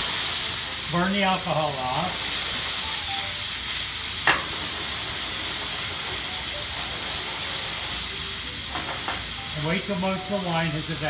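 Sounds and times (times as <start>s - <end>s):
wine sizzling in a skillet: 0.0s - 11.0s.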